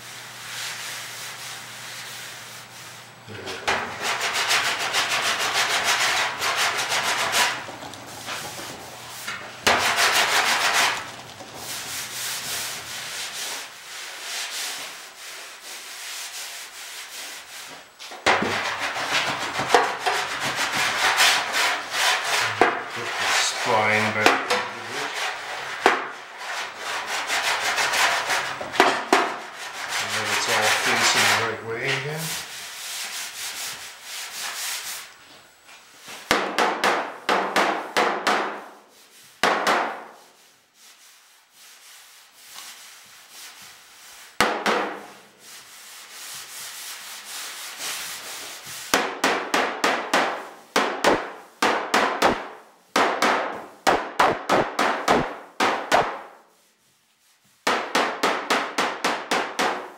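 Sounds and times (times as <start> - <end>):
sanding strokes on steel panel: 0.0 - 35.1, 40.0 - 51.7.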